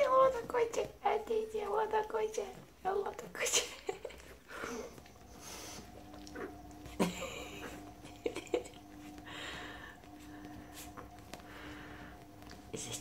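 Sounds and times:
fleece blanket rustling: 3.6 - 13.0.

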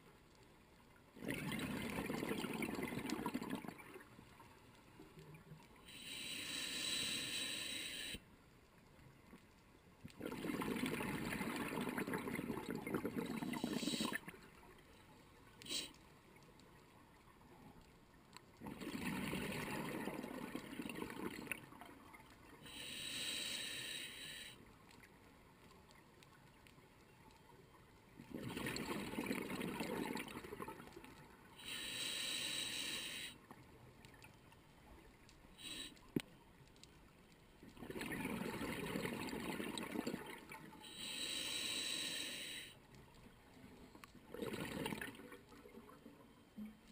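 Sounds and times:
bubbling exhalations underwater: 1.2 - 3.8, 10.2 - 14.2, 28.3 - 30.8, 37.8 - 40.6, 44.3 - 45.4
hissing regulator inhalations: 5.9 - 8.2, 22.7 - 24.6, 31.6 - 33.4, 35.6 - 36.0, 40.8 - 42.8.

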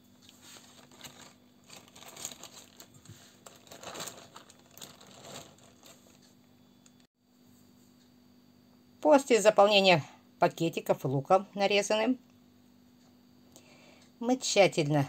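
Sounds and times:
plastic bag crinkling: 0.4 - 6.3.

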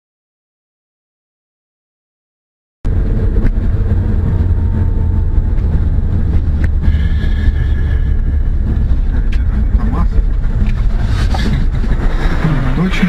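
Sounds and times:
vehicle engine and road rumble: 2.9 - 13.0.

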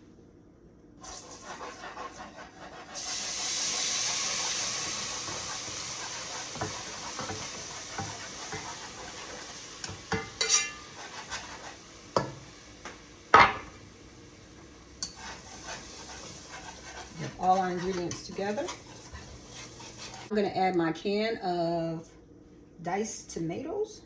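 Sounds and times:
food sizzling in hot pot: 1.0 - 20.3
metal cookware clanks: 9.8 - 10.9.

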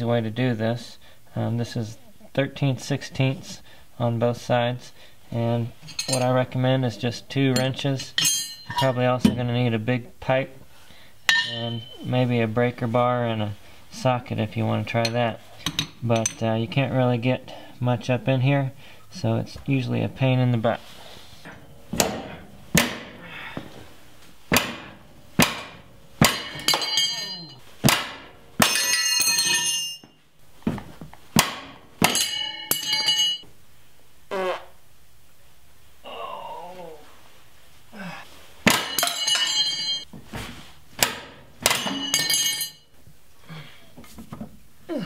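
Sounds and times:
wrench clanking when kicked: 5.8 - 6.4, 7.6 - 9.4, 11.3 - 12.1, 21.4 - 23.2, 24.5 - 30.2, 31.4 - 33.5, 38.6 - 40.1, 41.0 - 42.9.

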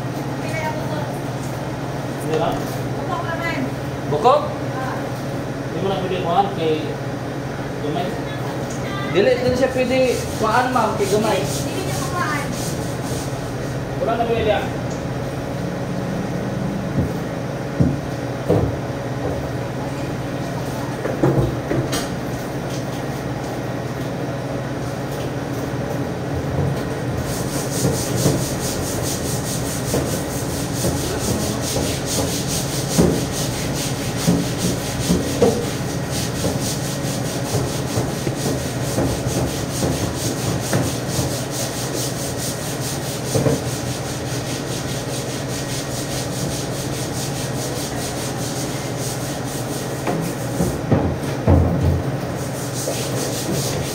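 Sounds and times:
steady machine hum: 0.0 - 53.9.

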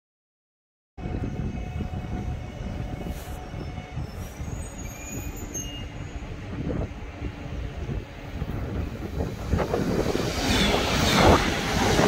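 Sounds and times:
train rumbling: 1.0 - 12.0
wheels squealing on rails: 1.2 - 6.8, 9.7 - 12.0.

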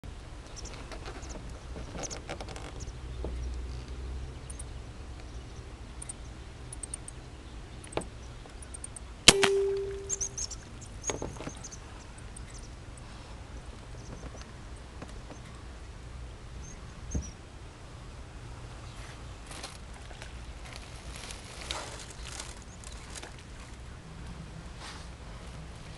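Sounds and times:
air rifle shot with metallic ring: 9.3 - 10.5.

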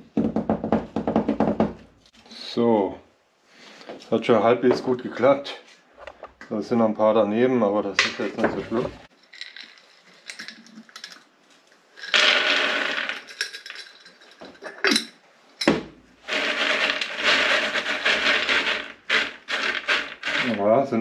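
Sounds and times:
glass jars clinking: 9.2 - 11.2, 13.0 - 15.2
cones rattling in wooden tray: 12.0 - 15.0, 16.3 - 20.9.

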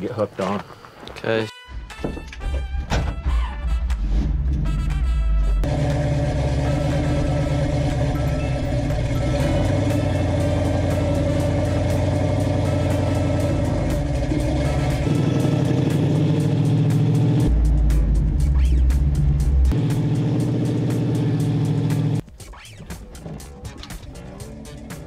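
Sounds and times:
background music: 1.5 - 25.0
vehicle engine running: 5.4 - 22.2.

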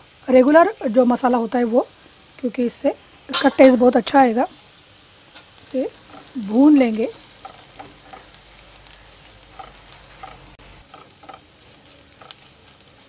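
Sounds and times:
onions sizzling in hot oil: 0.0 - 13.0
spatula scraping pan: 5.4 - 12.5.

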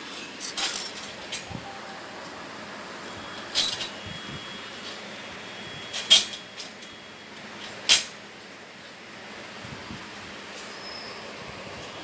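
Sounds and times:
metal tubes clinking: 0.4 - 1.4.

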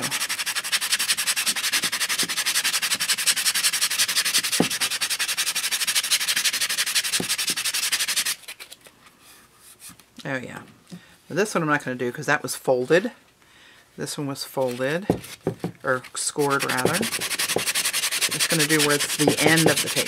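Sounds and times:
sanding block rubbing paper: 0.0 - 8.6, 16.2 - 20.0.

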